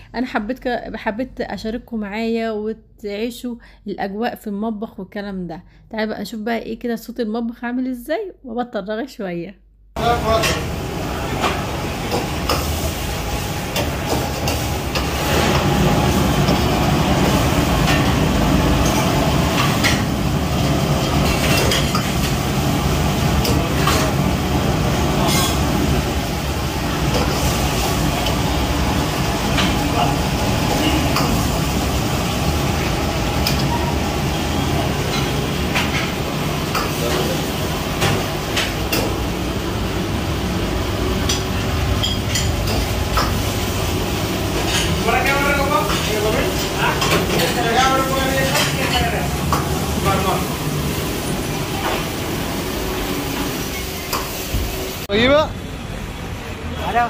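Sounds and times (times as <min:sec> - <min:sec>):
gas wok burner rushing: 0:10.0 - 0:55.1
loud kitchen rumbling: 0:10.0 - 0:57.0
utensils and dishes clinking: 0:18.8 - 0:22.4, 0:25.2 - 0:25.8, 0:29.2 - 0:31.6, 0:32.8 - 0:39.2, 0:41.2 - 0:43.5, 0:44.5 - 0:50.6
metal ladle scraping wok: 0:25.2 - 0:25.8.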